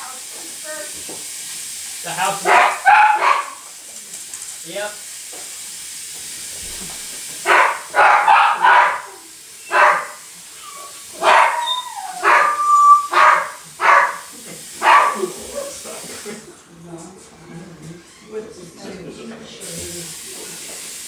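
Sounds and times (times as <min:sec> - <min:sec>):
dog barking: 0:02.4 - 0:03.7, 0:07.4 - 0:15.8
dog whining: 0:06.6 - 0:14.2.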